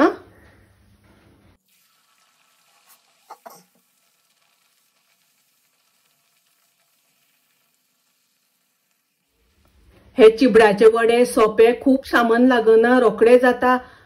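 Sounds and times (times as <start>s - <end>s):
oil sizzling: 1.6s - 10.8s.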